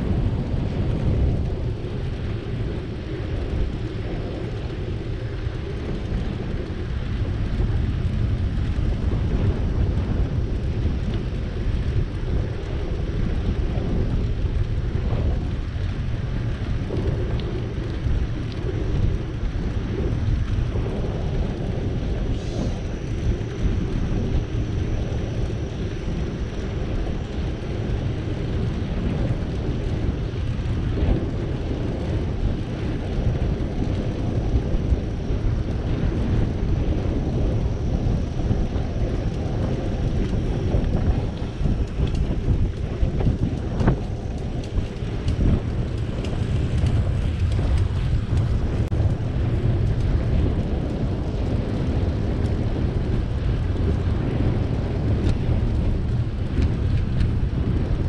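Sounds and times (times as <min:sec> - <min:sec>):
bicycle rolling noise: 0:00.0 - 0:58.0
wind rumbling on microphone: 0:00.0 - 0:58.0.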